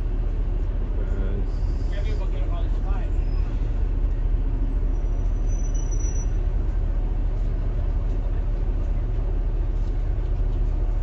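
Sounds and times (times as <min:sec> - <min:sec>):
bus engine and road rumble: 0:00.0 - 0:11.0.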